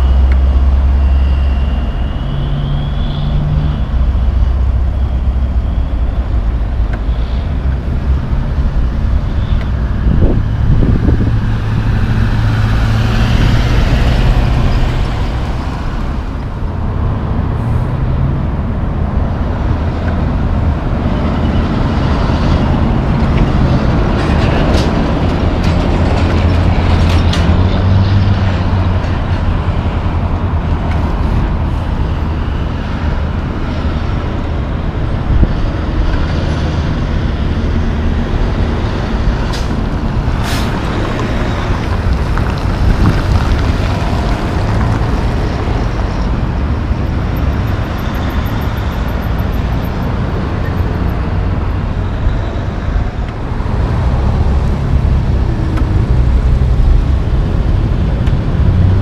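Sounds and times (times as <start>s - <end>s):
trucks and cars driving past: 0.0s - 59.0s
tyre noise: 39.5s - 46.3s.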